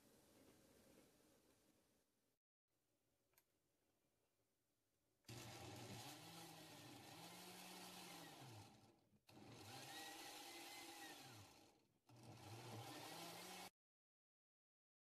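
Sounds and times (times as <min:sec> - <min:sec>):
blender motor running: 0:05.3 - 0:13.7.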